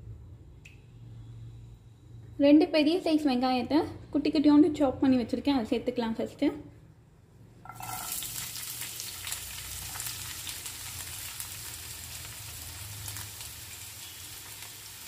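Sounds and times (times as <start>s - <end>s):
onions sizzling in hot oil: 7.7s - 15.0s.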